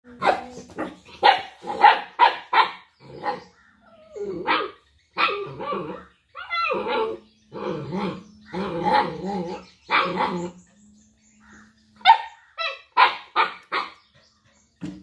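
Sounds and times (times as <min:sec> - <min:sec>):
small dog barking: 0:00.2 - 0:03.4, 0:12.0 - 0:14.0
dog growling: 0:03.0 - 0:10.9.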